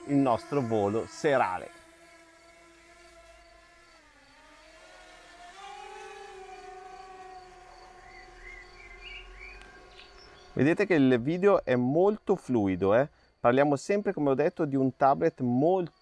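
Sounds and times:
drone propellers whining: 0:00.0 - 0:10.9.

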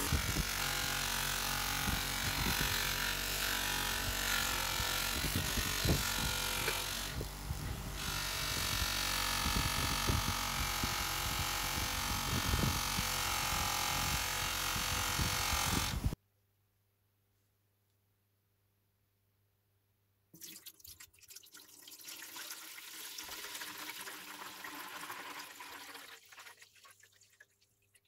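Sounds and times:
bench grinder motor hum: 0:00.0 - 0:16.2.

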